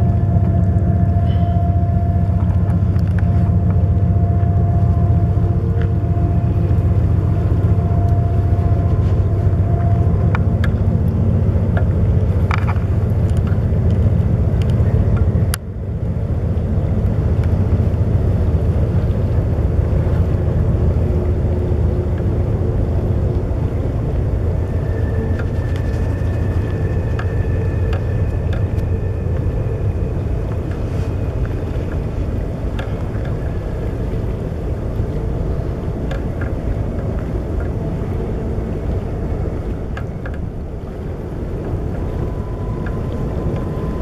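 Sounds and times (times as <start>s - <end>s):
faint steady whine: 0.0s - 44.0s
freight train rumbling on rails: 0.0s - 44.0s.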